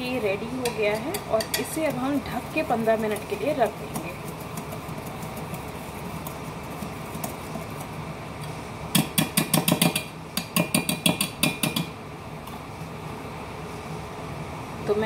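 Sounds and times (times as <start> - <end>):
whisk clinking in steel bowl: 0.6 - 7.9.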